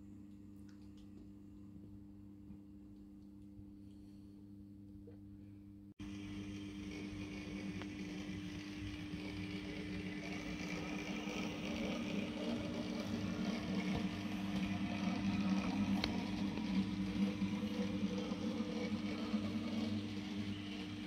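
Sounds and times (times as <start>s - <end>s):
model train motor hum: 6.0s - 21.0s
wheel-on-rail rumble: 6.1s - 21.0s.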